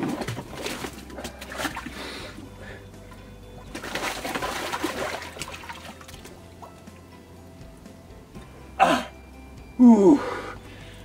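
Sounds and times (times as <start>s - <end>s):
water sloshing in a tub: 0.0s - 7.2s
man breathing: 1.8s - 3.0s, 9.8s - 11.0s
man's low vocal sounds: 9.8s - 10.5s.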